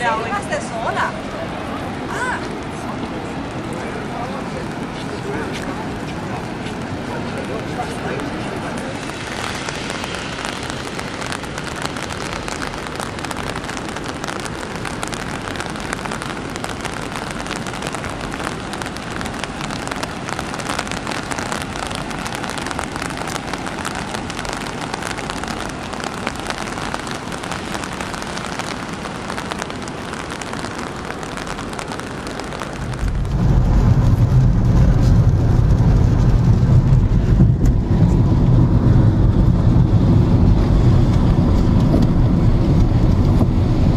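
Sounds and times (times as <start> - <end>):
falling water rushing: 0.0 - 43.9
car road rumble from inside: 29.4 - 43.9.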